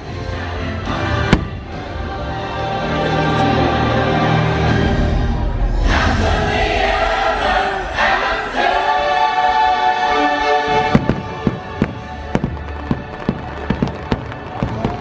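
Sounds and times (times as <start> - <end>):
choir singing: 0.0 - 13.1
orchestral music: 0.0 - 15.0
firework bangs: 1.2 - 1.9, 10.8 - 15.0.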